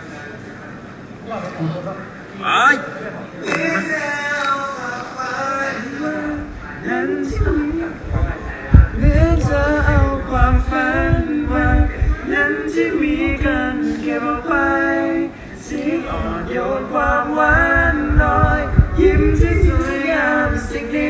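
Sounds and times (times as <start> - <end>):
man singing unaccompanied: 3.4 - 21.0
low thumps: 7.4 - 12.2, 17.4 - 20.7.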